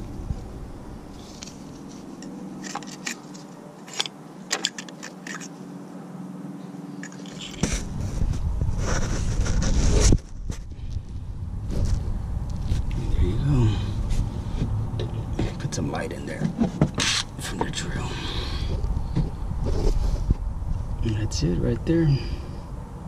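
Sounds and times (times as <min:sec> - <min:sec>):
steady low hum: 0:00.0 - 0:23.0
rubbing and handling noise: 0:01.1 - 0:05.6, 0:07.0 - 0:10.9, 0:14.0 - 0:17.8, 0:18.7 - 0:20.9
metal tools clicking and scraping: 0:01.4 - 0:05.6, 0:07.0 - 0:07.6.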